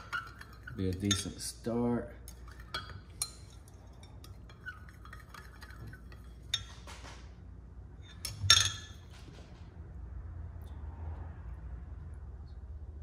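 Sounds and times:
spoon clinking against glass: 0.0s - 1.5s, 2.3s - 6.9s, 8.1s - 9.0s
spoon stirring liquid in glass: 0.0s - 1.6s, 2.2s - 7.0s.

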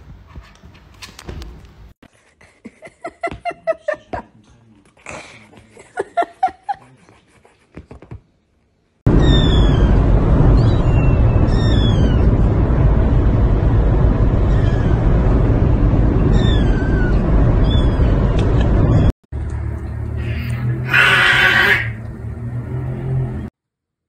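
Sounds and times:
kitten meowing: 20.2s - 22.0s.

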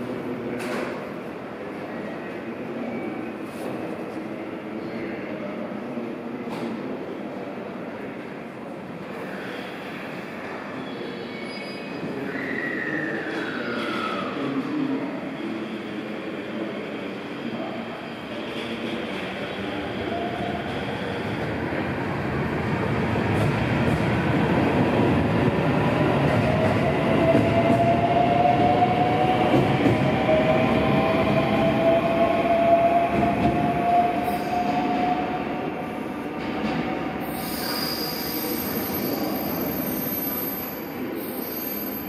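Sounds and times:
train wheels rumbling on rails: 18.5s - 35.3s.

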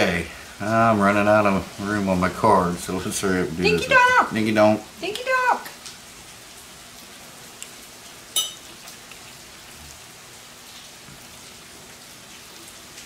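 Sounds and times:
steady rain falling: 0.0s - 13.0s
high ringing clink: 8.4s - 8.6s.

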